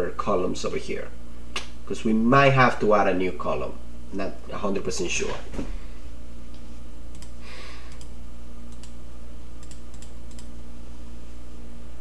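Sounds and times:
low electrical hum: 0.0s - 12.0s
computer mouse clicks: 7.1s - 9.0s, 9.6s - 10.5s.

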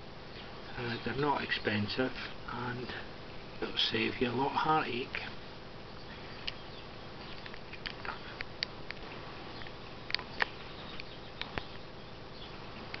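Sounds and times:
background hiss: 0.0s - 13.0s
faint clicks and ticks: 7.3s - 11.8s, 12.8s - 13.0s.

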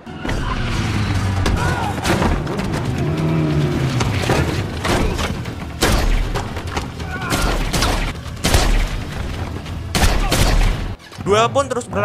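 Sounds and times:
motorcycle engines revving: 0.6s - 4.8s.

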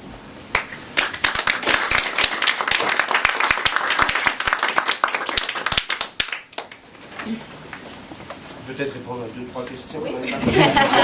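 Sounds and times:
audience applauding: 0.5s - 6.9s.

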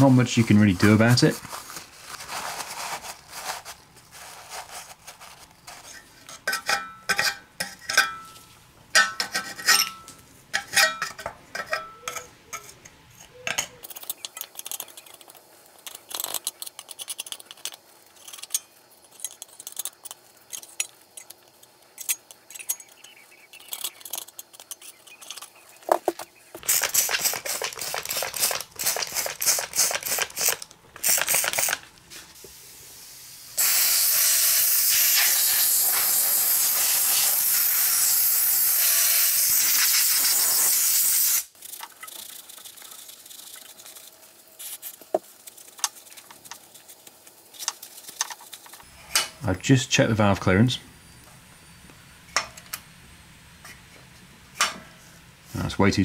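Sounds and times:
paper towel rustling: 0.0s - 5.9s
continuous hiss: 0.0s - 56.0s
screwdriver scraping metal: 9.0s - 26.0s.

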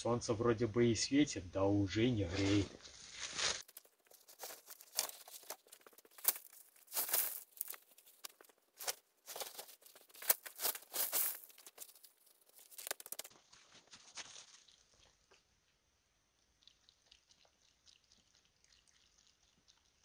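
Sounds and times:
plastic sacking rustling: 2.5s - 14.6s.

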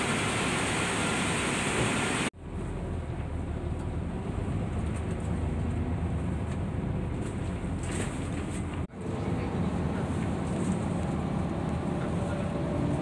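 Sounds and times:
bus engine rumble from inside: 0.0s - 13.0s.

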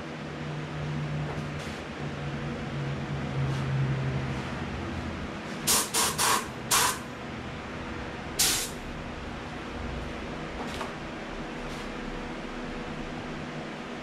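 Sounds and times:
steady hum: 0.0s - 14.0s
paint spray gun hissing: 5.7s - 7.0s, 8.4s - 8.8s.

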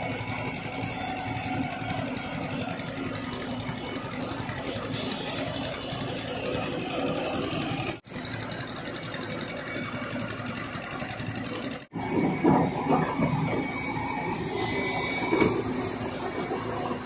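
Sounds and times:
excavator diesel engine under load: 0.0s - 17.0s.

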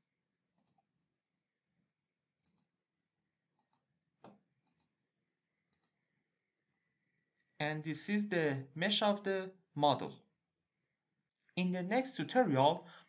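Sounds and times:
computer mouse clicks: 0.6s - 0.9s, 2.4s - 2.7s, 3.6s - 5.0s, 5.7s - 6.0s.

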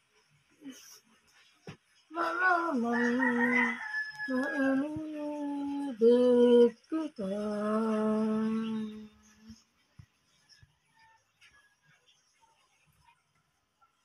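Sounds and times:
woman singing unaccompanied: 2.1s - 9.7s.

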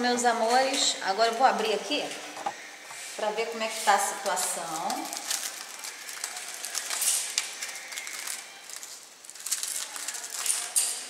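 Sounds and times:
aluminium foil crinkling: 3.2s - 11.0s.

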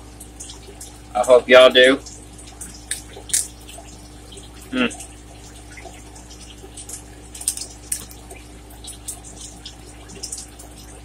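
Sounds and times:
person chewing wetly: 2.8s - 3.5s, 6.9s - 8.4s.

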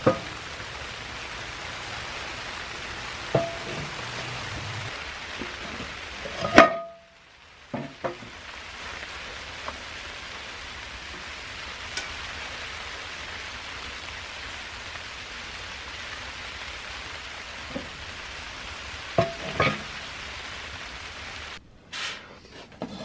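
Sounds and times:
steady hiss: 0.0s - 23.0s
cast-iron lid clanking on steel: 3.4s - 4.0s, 19.2s - 19.9s.

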